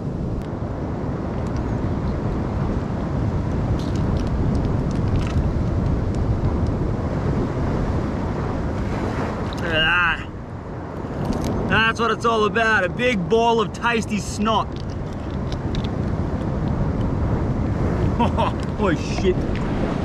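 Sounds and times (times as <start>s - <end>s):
wind rushing: 0.0s - 20.0s
sea swell washing against rocks: 15.6s - 20.0s.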